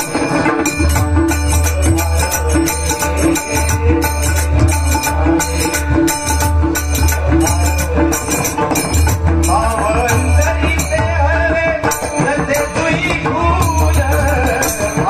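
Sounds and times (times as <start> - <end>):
man singing: 0.0 - 15.0.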